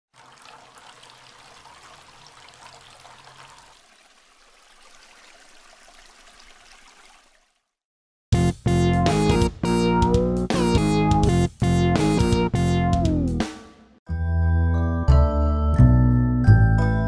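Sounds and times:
water trickling and splashing: 0.1s - 7.8s.

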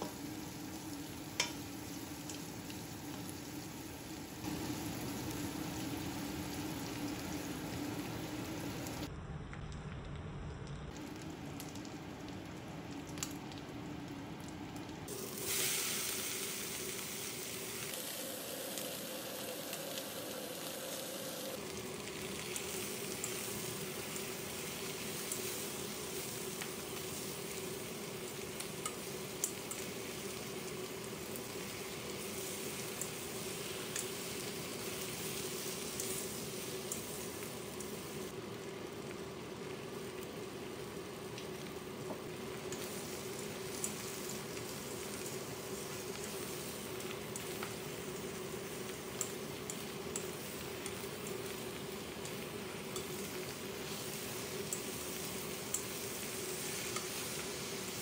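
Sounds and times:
vegetables sizzling in a pan: 0.0s - 9.1s, 10.9s - 58.0s
utensils clicking in a pan: 1.3s - 3.2s, 21.6s - 38.0s, 42.5s - 58.0s.

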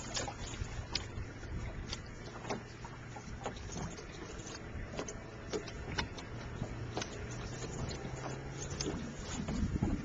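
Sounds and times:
low steady hum: 0.0s - 10.0s
waves lapping against boat hull: 0.0s - 10.0s
wind on microphone: 5.8s - 10.0s.

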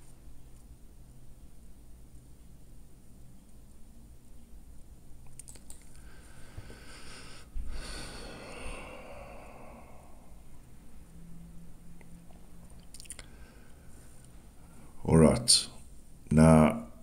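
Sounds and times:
computer mouse clicks: 5.3s - 6.0s
breathy noise close to microphone: 5.9s - 11.2s, 13.1s - 15.1s.

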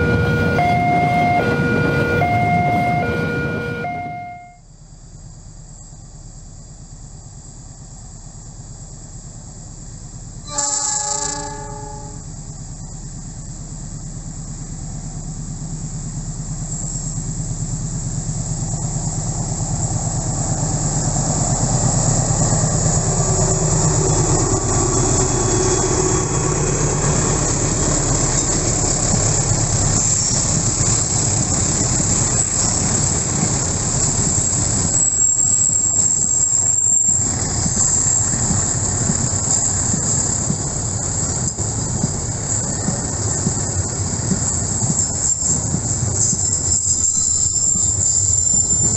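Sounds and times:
locomotive horn: 0.0s - 4.6s, 10.4s - 12.3s
diesel locomotive engine drone: 0.0s - 48.9s
train wheels rolling: 6.8s - 48.9s
wheels clicking over rail joints: 16.6s - 48.9s.

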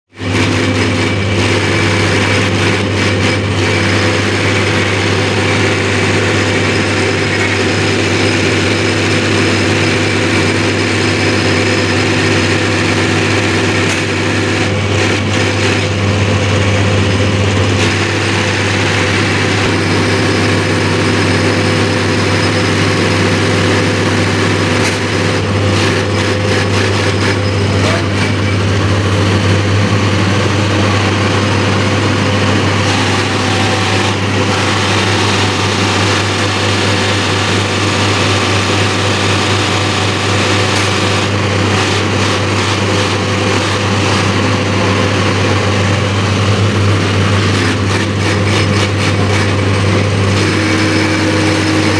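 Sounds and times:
machine drone with low hum: 0.2s - 51.9s.

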